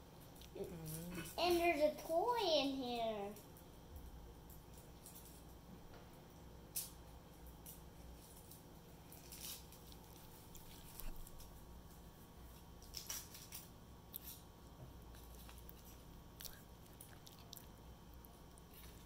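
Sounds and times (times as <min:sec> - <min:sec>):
foil wrapper crinkling: 0:08.2 - 0:11.6, 0:12.7 - 0:14.4.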